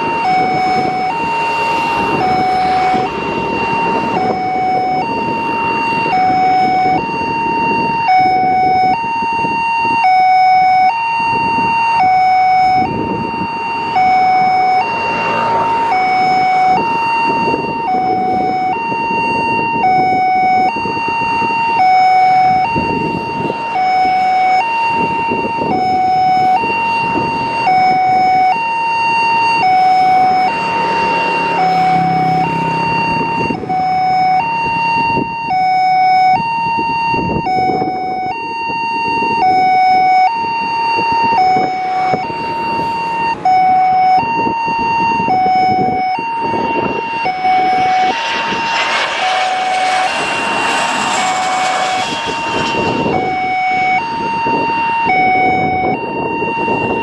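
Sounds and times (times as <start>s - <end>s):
two-tone hi-lo siren: 0.0s - 57.0s
rushing background noise: 45.6s - 55.6s.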